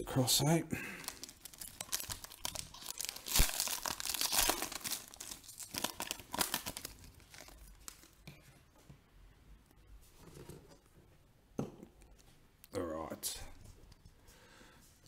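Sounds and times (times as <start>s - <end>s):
foil wrapper tearing and crinkling: 0.8s - 8.2s.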